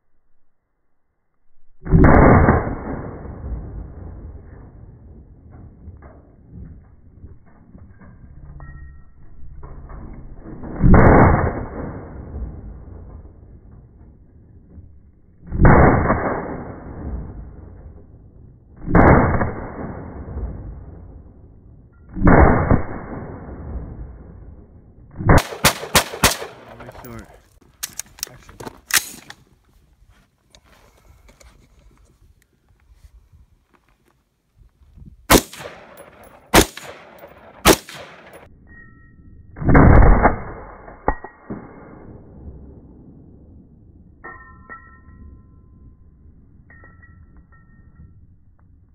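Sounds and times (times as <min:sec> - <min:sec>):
gunshots with rolling echo: 0:15.5 - 0:24.6, 0:25.2 - 0:27.4, 0:35.3 - 0:38.5.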